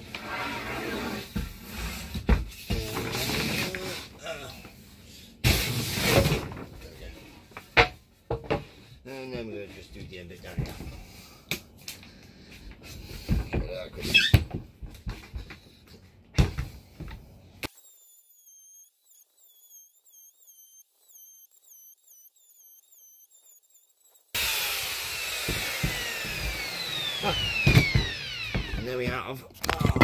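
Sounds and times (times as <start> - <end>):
electric router whining: 17.6 - 29.3
faint high warbling tone: 17.7 - 24.4.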